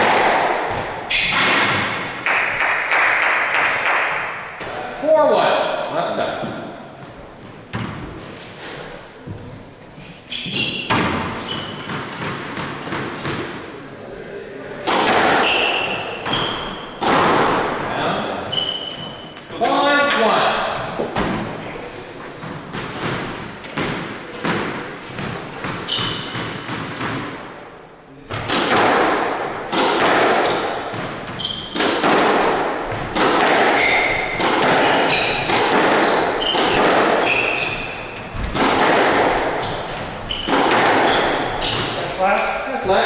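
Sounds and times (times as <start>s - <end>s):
squash ball hitting rackets and walls: 0.0s - 13.8s, 14.8s - 43.0s
shoes squeaking on wooden floor: 6.4s - 13.4s, 15.3s - 19.9s, 20.7s - 27.0s, 30.3s - 43.0s.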